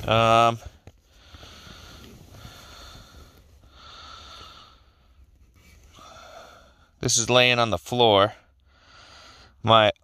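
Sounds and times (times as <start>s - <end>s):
man breathing: 1.0s - 7.0s, 8.6s - 9.6s.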